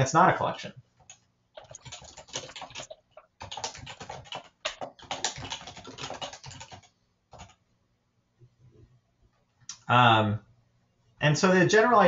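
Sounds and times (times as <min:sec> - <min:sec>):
rapid typing on keyboard: 0:01.0 - 0:07.6.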